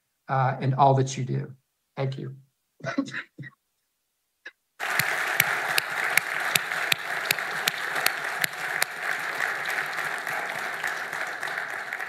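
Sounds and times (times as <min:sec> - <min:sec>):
audience applauding: 0:04.8 - 0:12.0
sharp close hand claps: 0:04.8 - 0:12.0.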